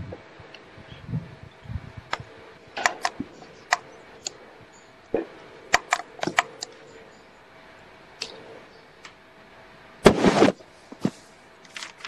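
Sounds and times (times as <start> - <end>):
sharp clicks and knocks: 5.1 - 6.8.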